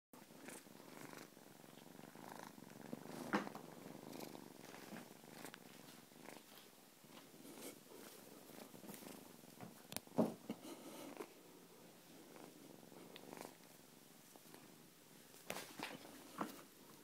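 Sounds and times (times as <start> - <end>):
kitten purring: 0.2 - 9.6, 10.5 - 17.0.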